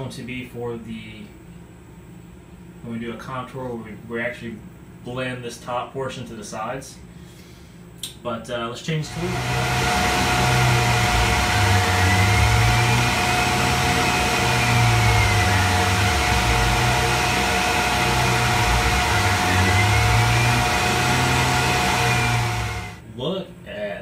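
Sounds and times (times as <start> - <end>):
hiss of cutting and coolant: 9.0 - 23.0
milling spindle whine: 9.0 - 23.0.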